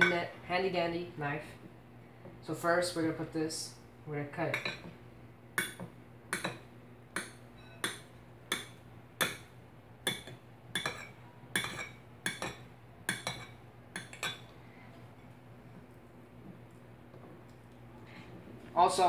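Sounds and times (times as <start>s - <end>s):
knife clinking against plate: 7.2s - 9.4s, 10.1s - 14.5s.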